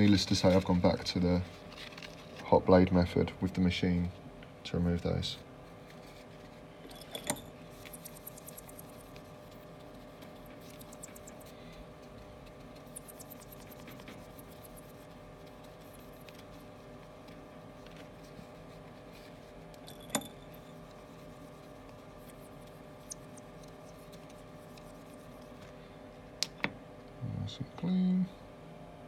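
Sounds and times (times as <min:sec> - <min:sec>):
rubbing and scratching on glass: 0:07.7 - 0:19.7, 0:20.6 - 0:25.6.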